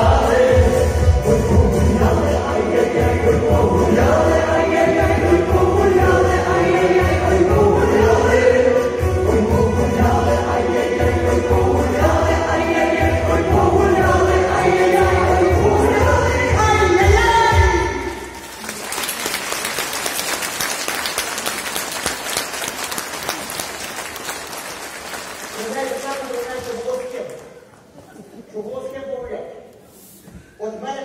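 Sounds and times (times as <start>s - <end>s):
women's ensemble singing in chorus: 0.0s - 17.0s
audience applause: 18.4s - 27.5s.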